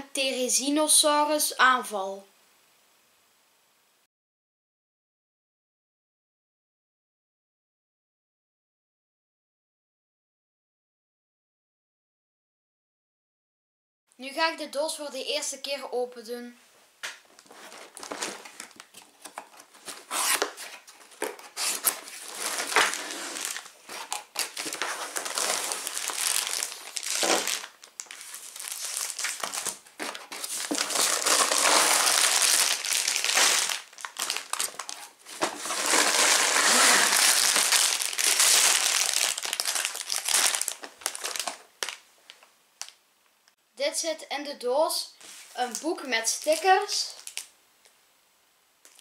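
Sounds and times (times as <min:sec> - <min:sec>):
plastic bags crinkling: 0:17.3 - 0:43.0, 0:45.6 - 0:47.5.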